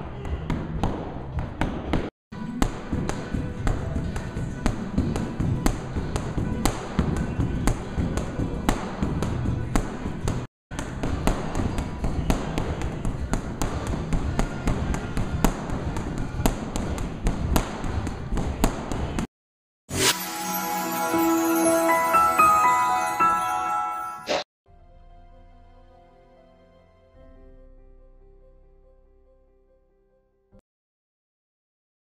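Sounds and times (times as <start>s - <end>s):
boxing gloves punching heavy bag: 0.3s - 19.3s
background music: 2.4s - 16.7s, 19.9s - 29.4s
chiming jingle: 20.0s - 24.5s.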